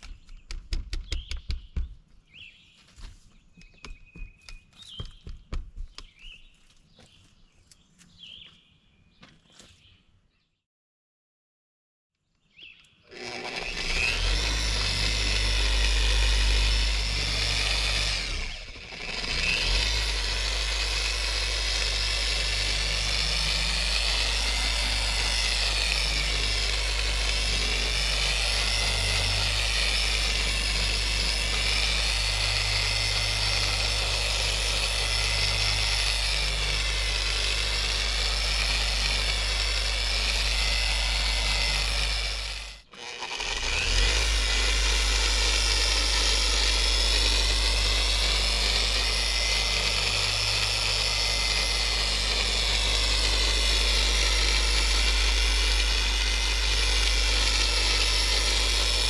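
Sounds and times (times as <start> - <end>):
polisher motor running: 13.1 - 59.0.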